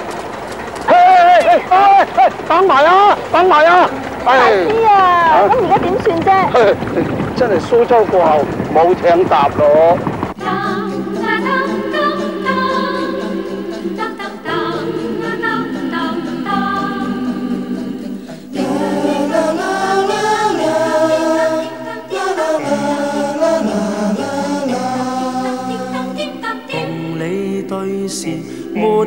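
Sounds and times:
television theme music: 0.9s - 6.7s, 7.4s - 29.0s
choir singing: 10.4s - 29.0s.

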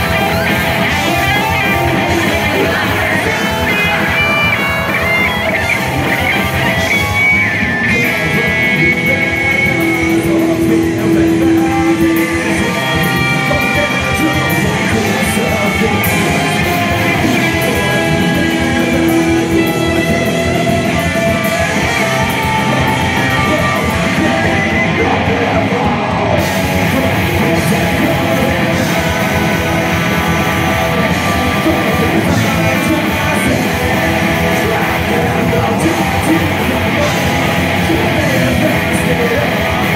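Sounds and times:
bass guitar: 0.0s - 39.9s
drum kit: 0.0s - 39.9s
electric guitars: 0.0s - 39.9s
man singing: 0.0s - 39.9s.

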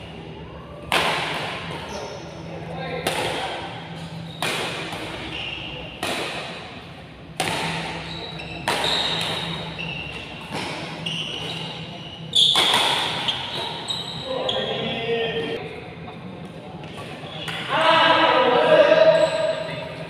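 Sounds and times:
rackets hitting shuttlecock: 0.8s - 2.0s, 3.0s - 11.8s, 12.4s - 13.9s.

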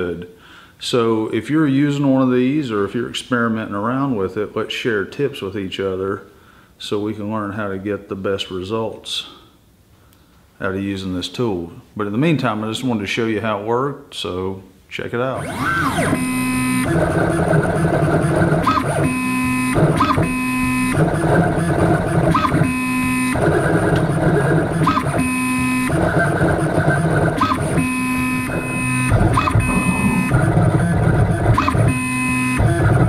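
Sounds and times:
stepper motors whining: 15.4s - 33.0s.

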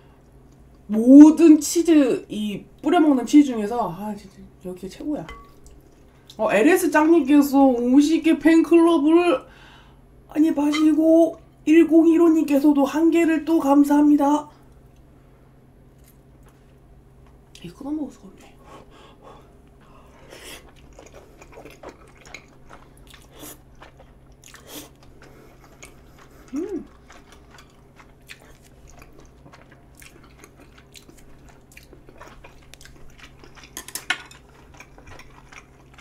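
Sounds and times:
person chewing and slurping: 20.1s - 36.0s.

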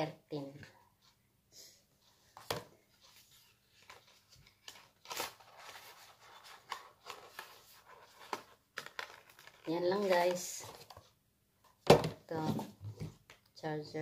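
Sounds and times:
packaging clicks scrapes and rustles: 3.4s - 11.1s.

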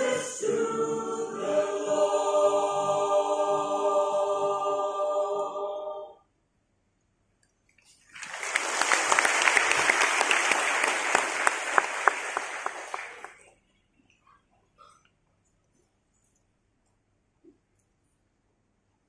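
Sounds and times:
choir holding a chord: 0.0s - 6.2s
audience applause: 8.1s - 13.5s.

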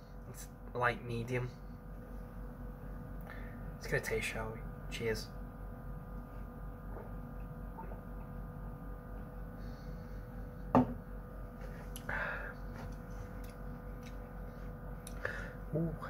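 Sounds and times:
low electrical hum: 0.0s - 16.0s
glass set down on table: 10.7s - 11.0s
breathy sound: 12.0s - 12.7s, 15.1s - 15.7s.

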